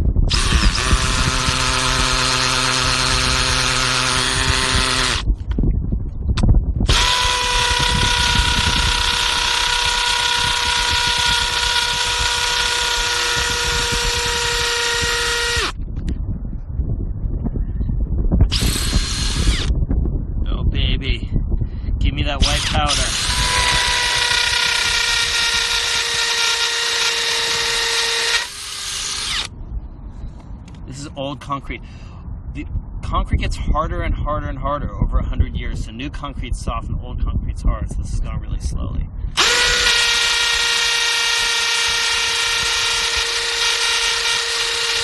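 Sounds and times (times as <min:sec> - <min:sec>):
power drill boring into concrete: 0:00.3 - 0:05.3, 0:06.9 - 0:15.8, 0:18.5 - 0:19.7, 0:22.4 - 0:29.5, 0:39.4 - 0:45.0.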